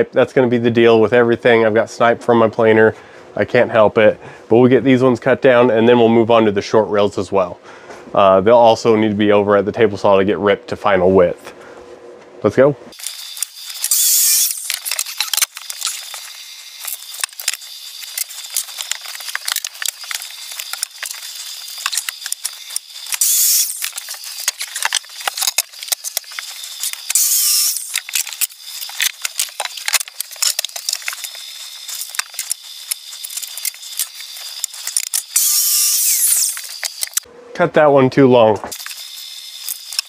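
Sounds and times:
miter saw cutting wood: 12.9s - 37.9s, 38.7s - 40.0s.

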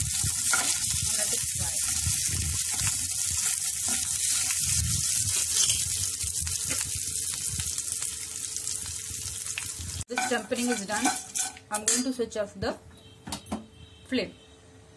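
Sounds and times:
spices sizzling in hot oil: 0.0s - 12.2s
spatula stirring in a pan: 0.1s - 6.0s.

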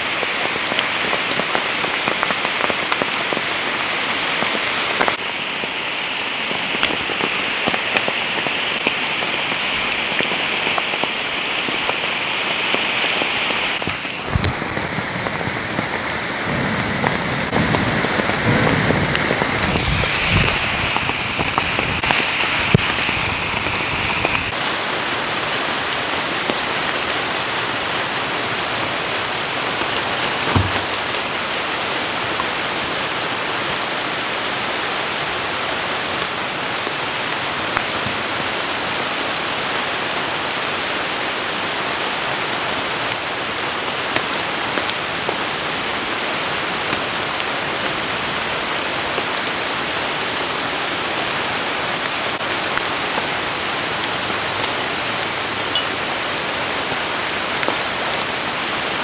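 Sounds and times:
steady rain hissing: 0.0s - 59.0s
dull knock: 30.5s - 31.0s.

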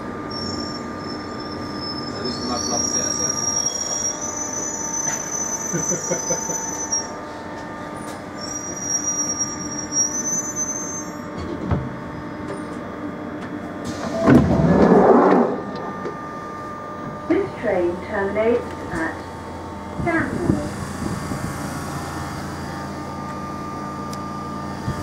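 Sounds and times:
high squeals of wheels and brakes: 0.3s - 7.2s, 8.0s - 11.4s.

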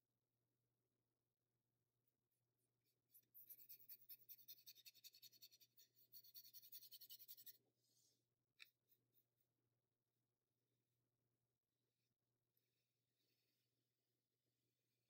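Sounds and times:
paintbrush brushing on paper: 2.6s - 9.5s.

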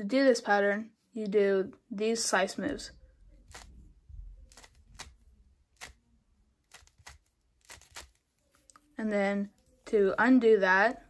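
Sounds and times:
puzzle cube clicking: 6.7s - 8.2s.

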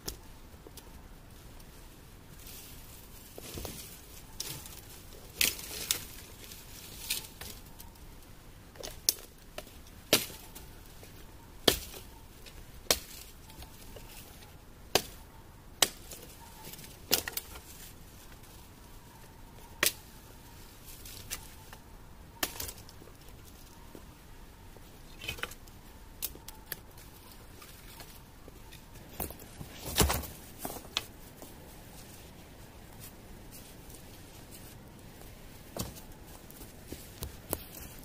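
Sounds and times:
wood chopping strikes: 14.9s - 15.2s.

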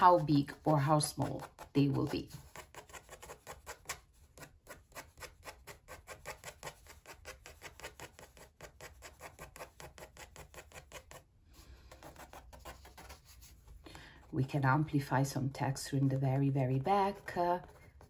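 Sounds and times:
pencil scratching on paper: 0.0s - 11.3s, 11.9s - 13.8s.

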